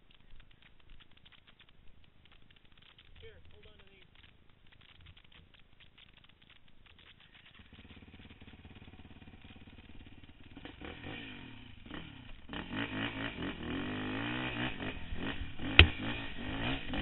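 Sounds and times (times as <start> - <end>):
quad engine revving: 7.7 - 17.0.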